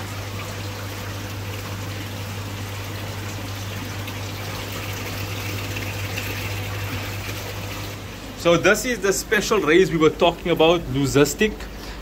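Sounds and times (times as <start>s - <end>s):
water trickling and splashing: 0.0s - 8.0s
low hum of pumps: 0.0s - 12.0s.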